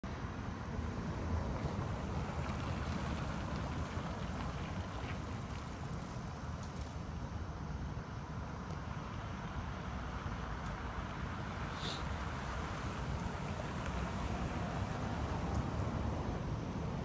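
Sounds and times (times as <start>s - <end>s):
street traffic rumble: 0.0s - 17.0s
car driving past: 10.8s - 17.0s.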